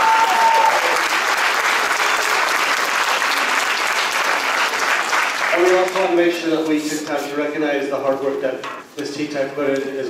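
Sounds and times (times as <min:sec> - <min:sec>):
audience applause: 0:00.0 - 0:06.2.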